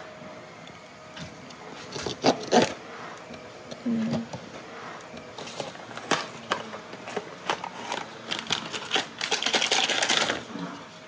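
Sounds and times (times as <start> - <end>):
plastic wrapper crinkling: 7.5 - 10.5.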